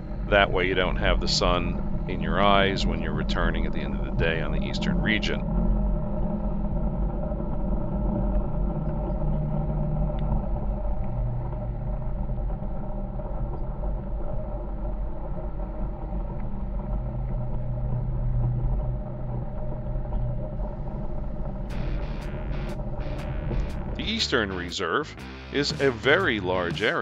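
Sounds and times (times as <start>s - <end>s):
vehicle engine droning: 0.0s - 25.6s.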